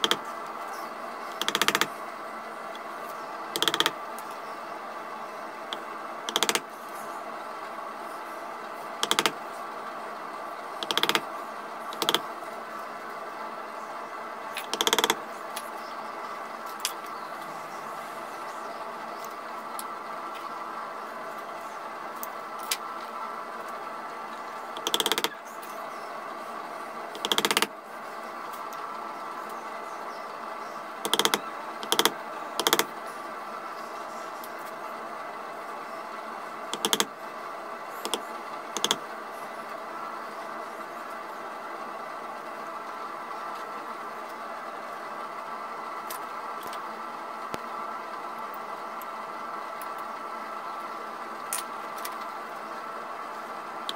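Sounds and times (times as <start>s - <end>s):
background hum: 0.0s - 53.9s.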